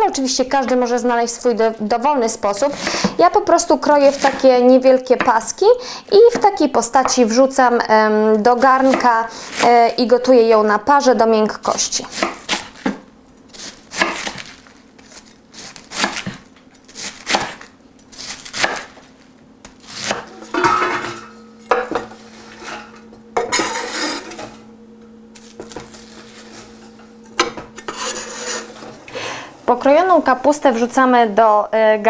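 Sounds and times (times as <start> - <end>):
faint steady hum: 0.0 - 32.0
knife scraping cabbage off board: 4.0 - 4.6, 8.6 - 9.9, 12.1 - 19.1, 19.7 - 20.6, 22.0 - 24.6, 25.4 - 29.0
knife chopping on wooden board: 12.1 - 13.0, 13.6 - 19.0, 19.7 - 20.8.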